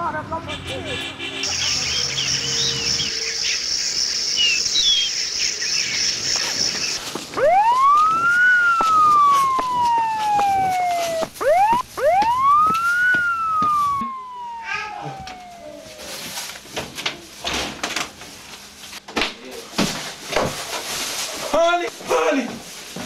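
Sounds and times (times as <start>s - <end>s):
high-pitched buzz: 1.5s - 16.2s
emergency vehicle siren wailing: 7.4s - 16.5s.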